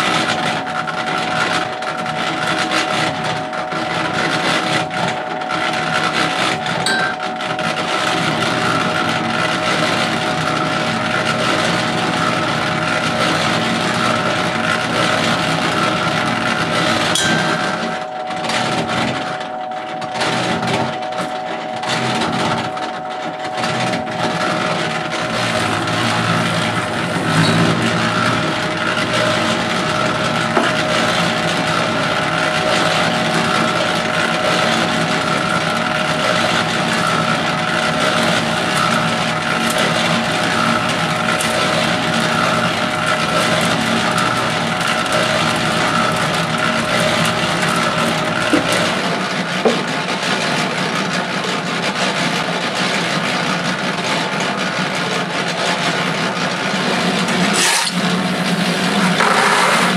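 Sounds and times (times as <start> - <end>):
cement mixer churning: 0.0 - 59.9
cement being poured: 57.5 - 59.9.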